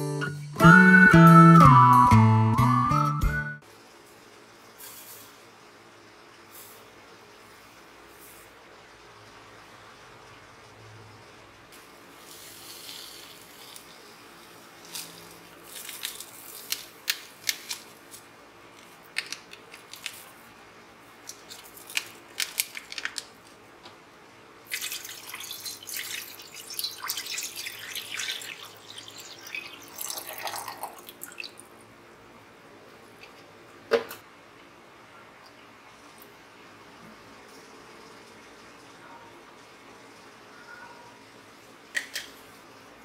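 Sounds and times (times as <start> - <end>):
powder ticking and rustling: 14.8 - 20.5, 21.2 - 24.0
water pouring and splashing: 24.7 - 31.6.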